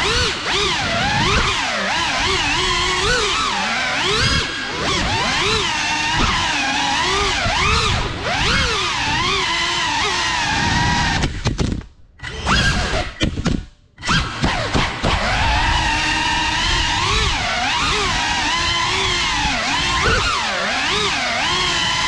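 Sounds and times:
drone motors whining: 0:00.0 - 0:11.5, 0:12.1 - 0:13.4, 0:14.0 - 0:22.0.

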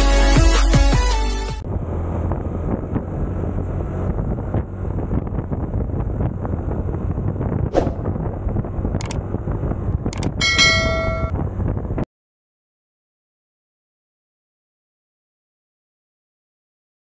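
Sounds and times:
scooter engine and road rumble: 0:01.6 - 0:12.1
wind buffeting microphone: 0:01.7 - 0:12.1
short sharp sound: 0:07.7 - 0:08.1.

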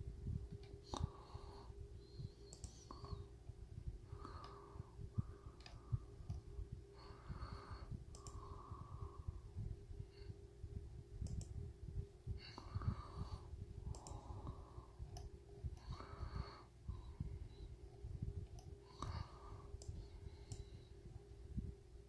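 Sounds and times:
low hum: 0:00.0 - 0:22.0
computer mouse clicks: 0:02.4 - 0:03.3, 0:05.6 - 0:06.5, 0:08.1 - 0:08.6, 0:11.2 - 0:11.6, 0:13.9 - 0:15.9, 0:18.4 - 0:19.1, 0:19.8 - 0:20.7.

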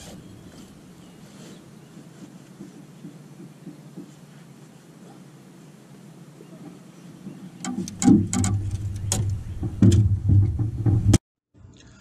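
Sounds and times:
low rumble through hull: 0:07.2 - 0:12.0
thumps and knocks on metal boat: 0:07.3 - 0:11.2.

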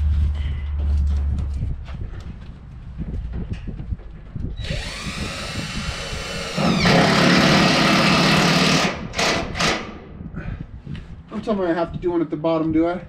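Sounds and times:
cordless drill driving a screw: 0:04.6 - 0:09.8.

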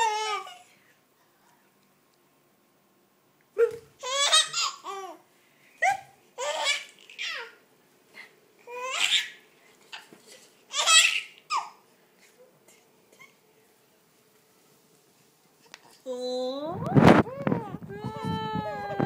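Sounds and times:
baby laughing: 0:03.6 - 0:05.2, 0:05.8 - 0:07.6, 0:08.7 - 0:10.1, 0:10.7 - 0:11.8.

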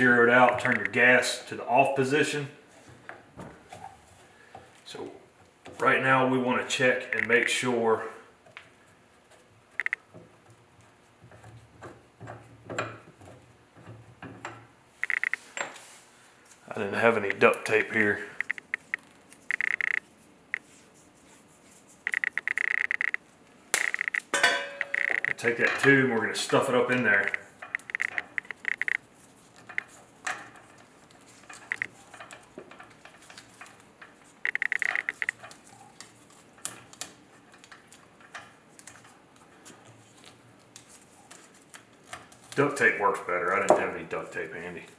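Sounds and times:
short electronic beeps: 0:15.0 - 0:15.4, 0:18.4 - 0:20.0, 0:22.1 - 0:23.2, 0:24.8 - 0:25.4, 0:27.2 - 0:29.0, 0:34.5 - 0:35.3
rubber tube clicking and rattling: 0:27.2 - 0:39.1.

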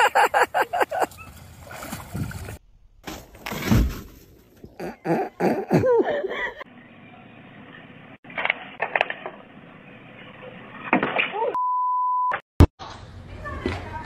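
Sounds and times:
body thumping into snow: 0:03.0 - 0:04.6.

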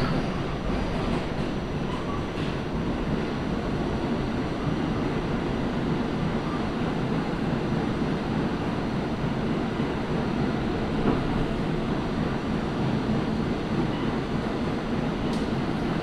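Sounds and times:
subway car rumbling: 0:00.0 - 0:16.0.

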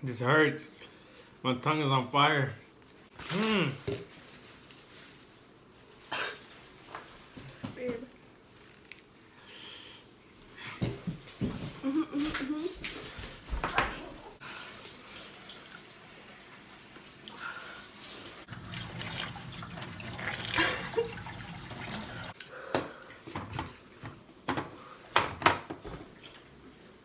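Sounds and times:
tap water splashing in sink: 0:18.5 - 0:22.8.

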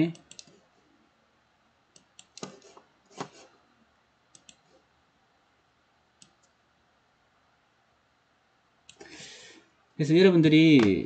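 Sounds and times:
computer mouse clicks: 0:00.1 - 0:00.6, 0:01.9 - 0:03.4, 0:04.3 - 0:04.7, 0:06.2 - 0:06.6.

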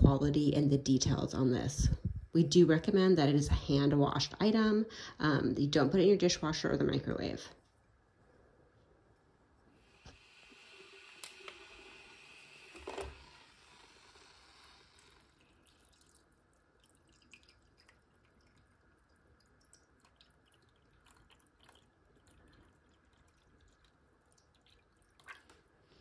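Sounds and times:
soft hiss: 0:07.5 - 0:16.8
water pouring into a mug: 0:10.1 - 0:26.0
water trickling and dripping: 0:15.0 - 0:26.0.

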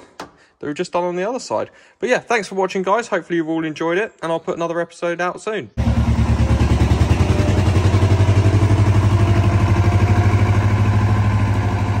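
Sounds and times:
vehicle engine running: 0:05.8 - 0:12.0.

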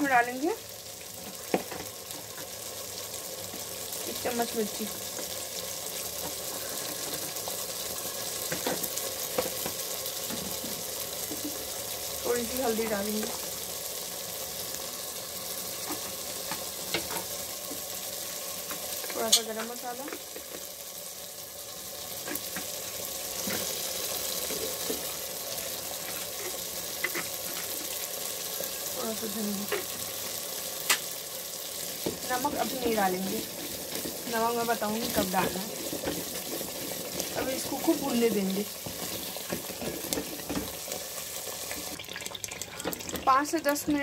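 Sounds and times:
paste sizzling in hot oil: 0:00.0 - 0:44.0
spatula scraping a pan: 0:26.0 - 0:28.1, 0:32.0 - 0:40.7.

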